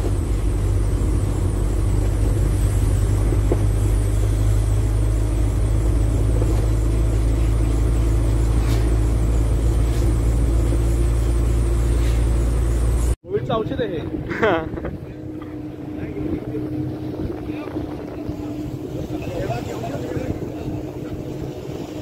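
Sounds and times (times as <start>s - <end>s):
car interior road rumble: 0.0s - 13.2s.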